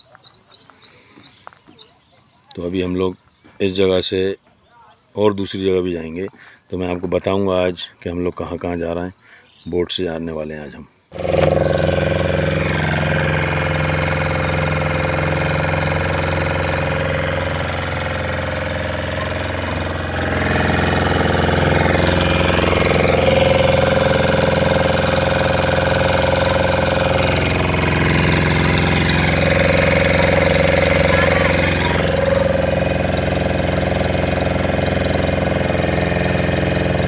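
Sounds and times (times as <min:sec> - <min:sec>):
boat engine running: 0:11.1 - 0:37.0.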